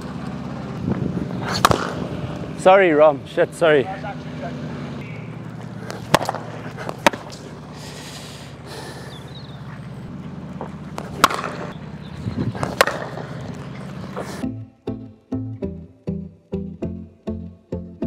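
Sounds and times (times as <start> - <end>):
steady low hum: 0.0 - 14.8
cricket bat hitting ball: 1.5 - 2.1, 5.8 - 7.6, 10.9 - 11.8, 12.6 - 14.0.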